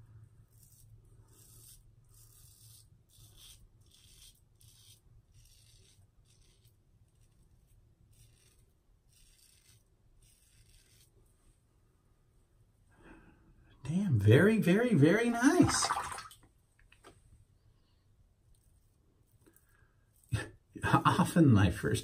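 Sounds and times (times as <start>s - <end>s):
razor scratching whiskers: 0.5s - 11.2s.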